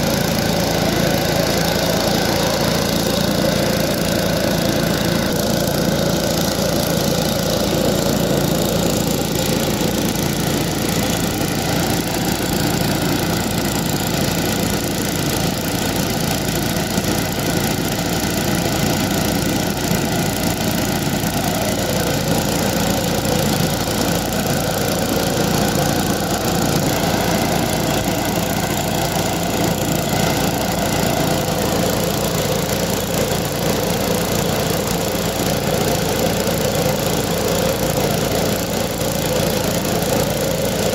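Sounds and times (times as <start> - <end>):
small engine running steadily: 0.0 - 40.9
burner hissing: 21.0 - 34.4.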